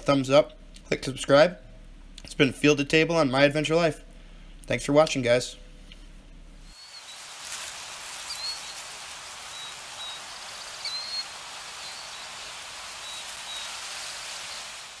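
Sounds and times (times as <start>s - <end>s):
steady hiss: 3.3s - 15.0s
short high bird chirps: 6.7s - 7.3s, 8.2s - 14.7s.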